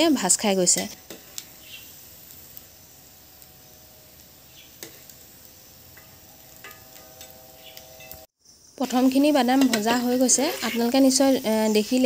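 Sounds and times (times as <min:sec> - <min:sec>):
peanuts sizzling in hot oil: 0:00.0 - 0:12.0
spatula scraping metal pan: 0:05.9 - 0:08.3, 0:09.4 - 0:12.0.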